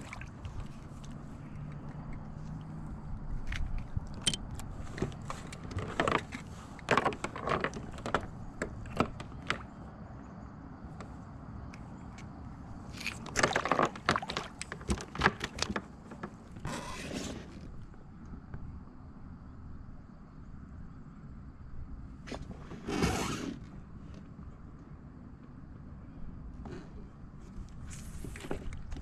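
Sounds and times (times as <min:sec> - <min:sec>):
clicks and rattles of fishing tackle: 0:03.4 - 0:09.7, 0:11.7 - 0:16.6.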